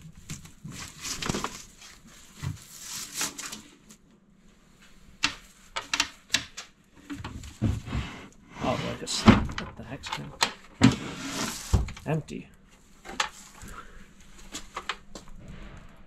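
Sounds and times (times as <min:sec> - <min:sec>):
plastic wrap rustling: 0:00.0 - 0:04.0.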